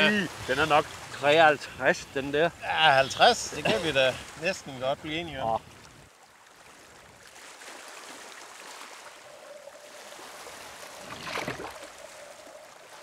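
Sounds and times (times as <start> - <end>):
water lapping and trickling: 0.0 - 13.0
water swish: 5.6 - 13.0.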